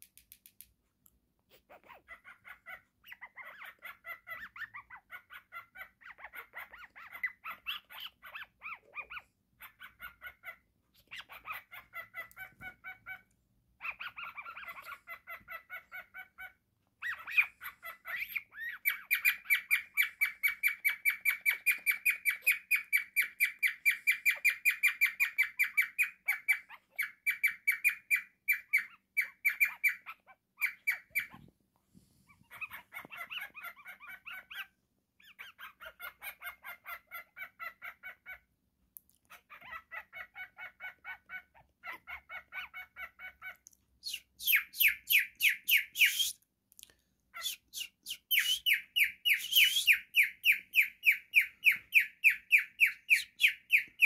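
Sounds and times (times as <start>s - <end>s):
bird chirping song: 1.6s - 31.5s, 32.3s - 46.4s, 47.3s - 54.0s.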